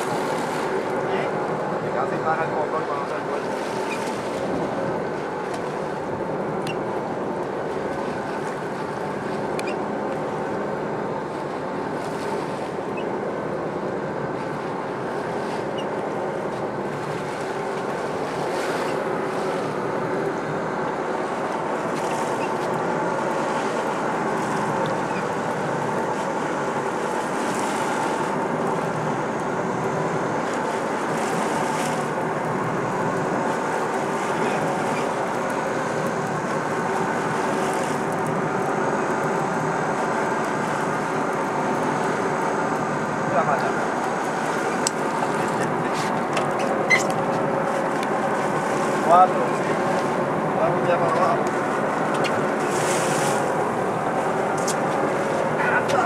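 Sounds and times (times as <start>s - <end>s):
boat engine running: 0.0s - 56.0s
water rushing along hull: 0.0s - 56.0s.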